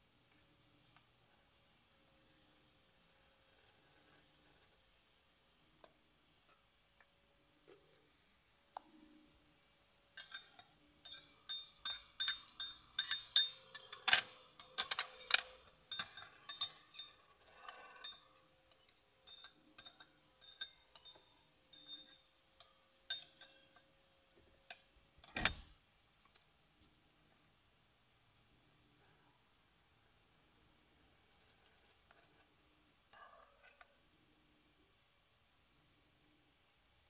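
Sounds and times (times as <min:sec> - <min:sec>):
fork clinking against ceramic bowl: 0:10.2 - 0:23.8.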